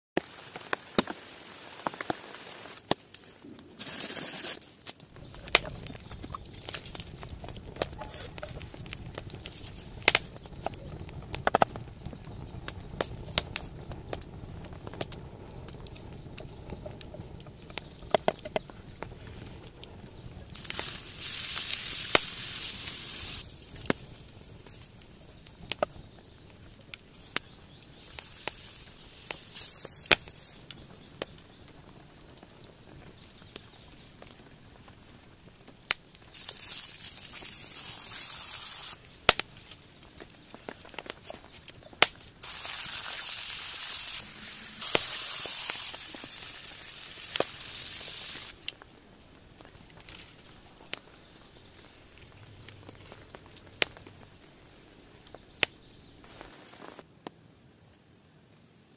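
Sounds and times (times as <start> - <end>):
patties sizzling on grill pan: 20.6 - 23.5, 36.3 - 39.0, 42.4 - 48.5.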